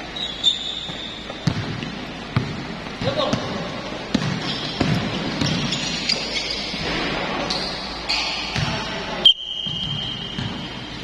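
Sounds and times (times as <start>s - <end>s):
sneaker squeaks: 0.0s - 11.0s
basketball bouncing on concrete: 0.9s - 5.7s.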